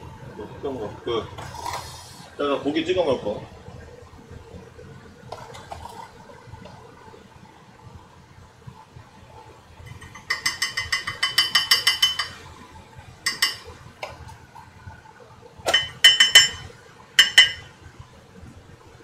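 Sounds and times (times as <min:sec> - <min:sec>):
tableware clinking: 0:09.9 - 0:12.4, 0:13.3 - 0:13.8, 0:15.7 - 0:17.8.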